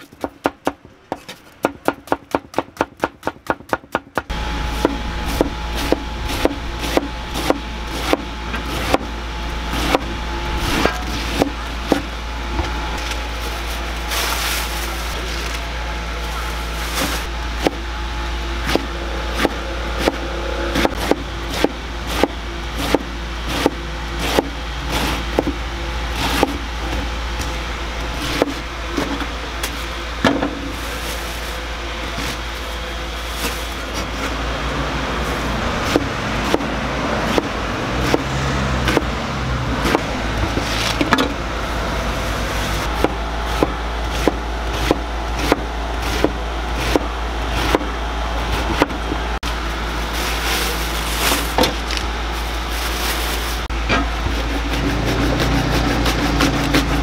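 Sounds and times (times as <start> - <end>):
low rumble: 4.3 - 54.7
knife slicing cabbage: 54.3 - 57.0.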